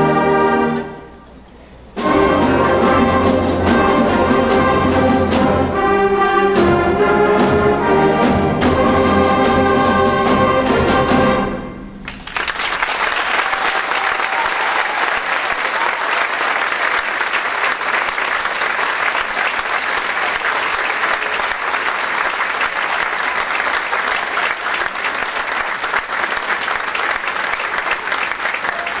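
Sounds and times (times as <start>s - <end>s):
audience applauding: 12.0s - 29.0s.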